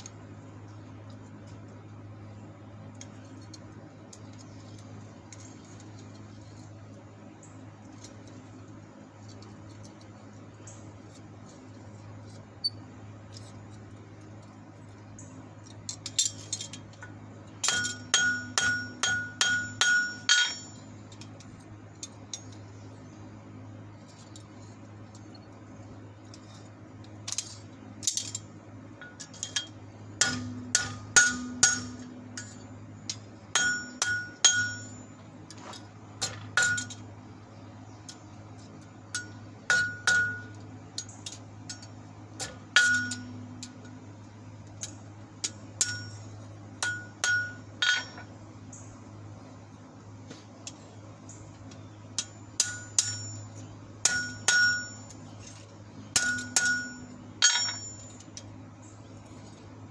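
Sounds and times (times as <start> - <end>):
hammer ringing on anvil: 17.7 - 20.8, 30.2 - 32.6, 33.5 - 35.1, 39.2 - 40.5, 42.8 - 43.5, 45.8 - 46.2, 46.8 - 48.2, 52.2 - 55.1, 56.2 - 58.1.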